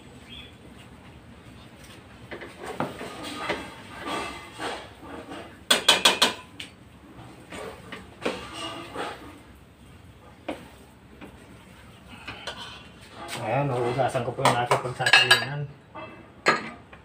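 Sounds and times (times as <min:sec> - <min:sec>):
spatula scraping sticky rice in pot: 0:02.3 - 0:06.1, 0:07.2 - 0:09.5.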